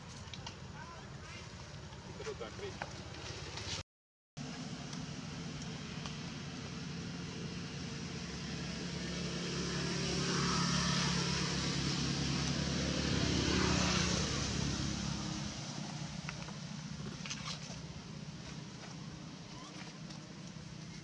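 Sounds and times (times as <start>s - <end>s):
vehicle passing by: 4.4s - 19.7s.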